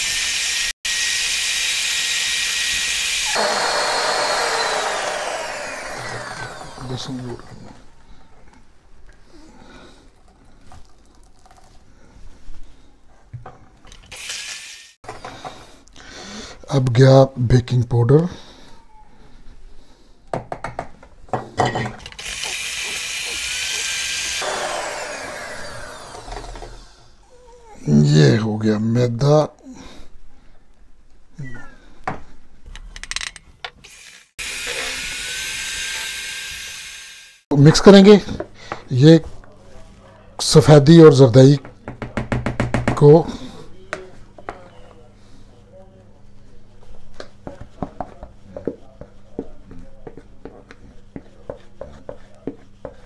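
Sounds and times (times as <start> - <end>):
electric hand mixer whirring: 0.0 - 7.0, 22.0 - 27.1, 33.8 - 37.4.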